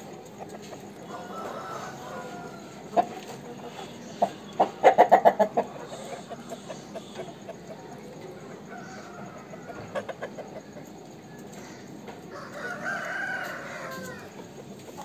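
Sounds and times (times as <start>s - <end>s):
hen clucking: 0.1s - 15.0s
rooster crowing: 1.0s - 3.2s, 8.2s - 10.8s, 11.6s - 14.6s.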